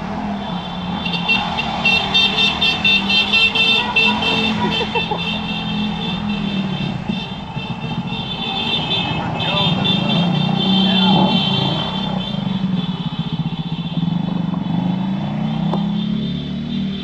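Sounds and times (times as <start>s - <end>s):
car driving hum: 0.0s - 12.8s.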